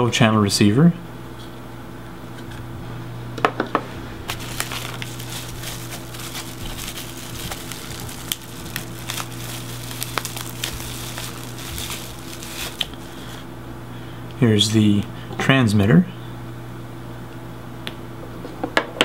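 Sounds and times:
steady low hum: 0.0s - 18.4s
plastic bag crinkling: 4.3s - 13.4s.

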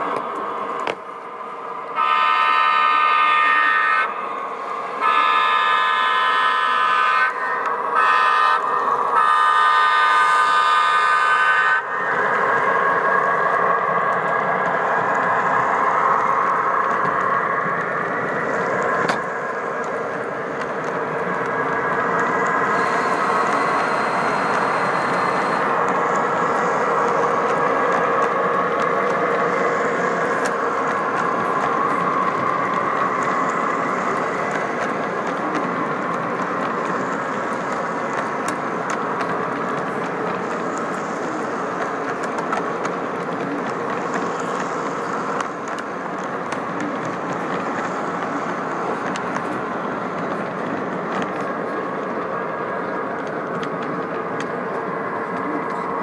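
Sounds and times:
train rolling rumble: 0.0s - 56.0s
model train horn blasts: 2.0s - 4.2s, 5.0s - 11.9s.

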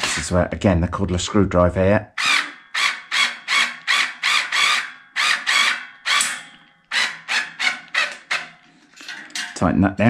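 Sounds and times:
cordless screwdriver driving a bolt: 2.2s - 8.5s.

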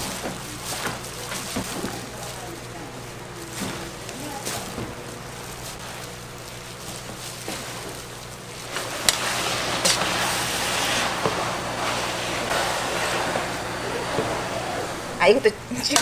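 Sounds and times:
seaweed sizzling in a pan: 0.0s - 15.4s
steady low hum: 0.0s - 16.0s
stems rustling: 0.0s - 16.0s
spatula clacking and scraping pan: 8.7s - 11.5s.

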